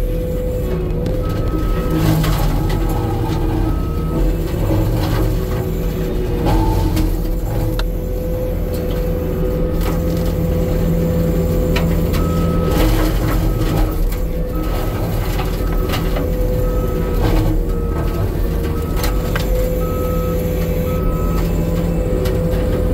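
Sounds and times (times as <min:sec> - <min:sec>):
skid steer engine under load: 0:00.0 - 0:22.9
mulcher grinding tree: 0:00.5 - 0:22.9
backup alarm beeping: 0:01.2 - 0:04.4, 0:12.1 - 0:22.2.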